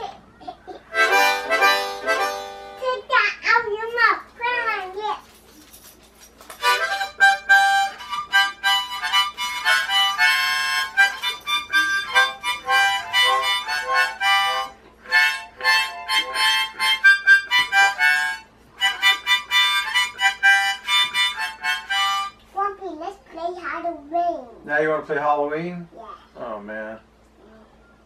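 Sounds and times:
harmonica notes and chords: 0.9 - 3.2, 6.6 - 22.5.

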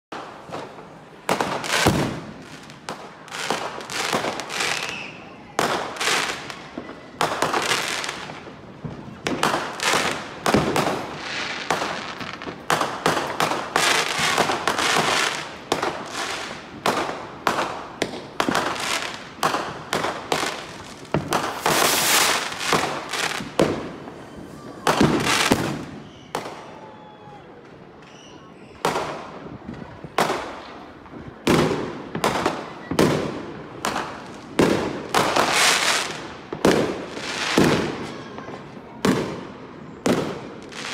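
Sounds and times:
fireworks bangs and crackles: 0.1 - 40.9.

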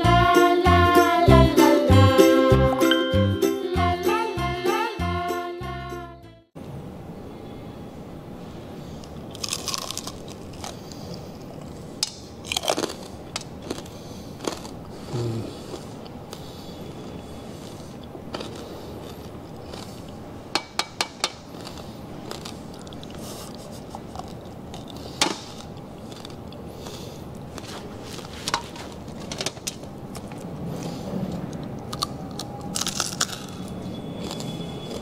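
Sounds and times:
crunching and chewing crispy pork: 9.0 - 16.6, 17.3 - 20.2, 21.3 - 29.3, 30.0 - 35.0.

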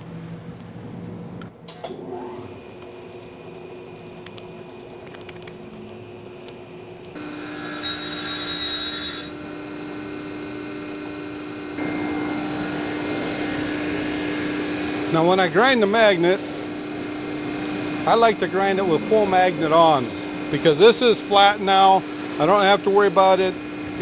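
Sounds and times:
high grinding sound: 7.2 - 24.0
surface grinder motor hum: 7.2 - 24.0.

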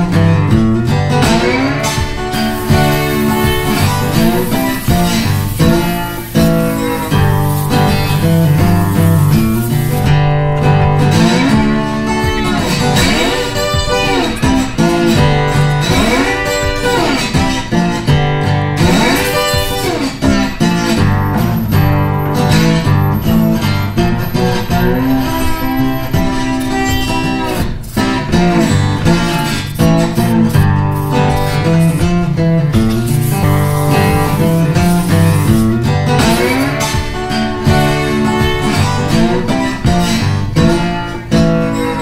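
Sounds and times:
guitar instrumental music: 0.0 - 42.0
steady bass line: 2.0 - 11.6, 20.9 - 37.1.

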